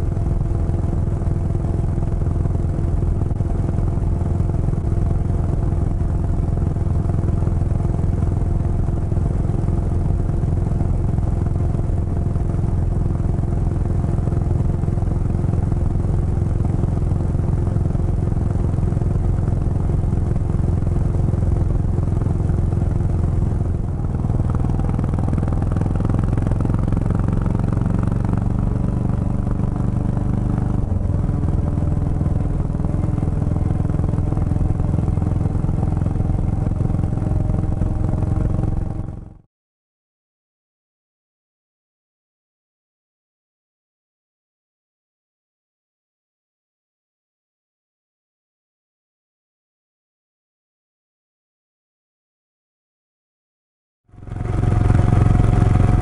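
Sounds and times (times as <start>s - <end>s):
motorcycle engine cruising: 0.0s - 39.5s, 54.1s - 56.0s.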